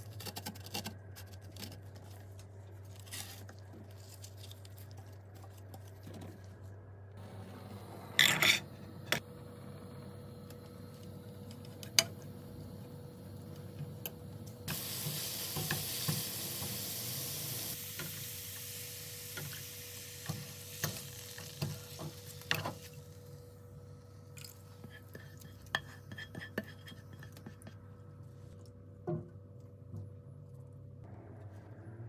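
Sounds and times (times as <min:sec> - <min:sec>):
carrot sizzling in oil: 0:14.6 - 0:23.2
spatula stirring and clicking on pan: 0:24.8 - 0:27.9.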